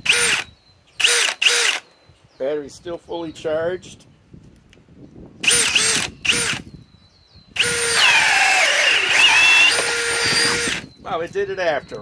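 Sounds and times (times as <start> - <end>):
cordless drill boring through wood: 0.0 - 1.8, 5.4 - 6.7, 7.6 - 10.9.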